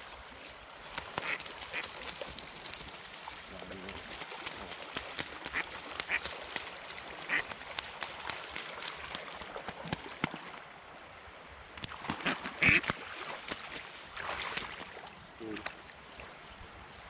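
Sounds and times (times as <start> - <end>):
splashing on water: 0.8 - 10.6, 11.8 - 15.9
duck quacking: 12.2 - 12.8.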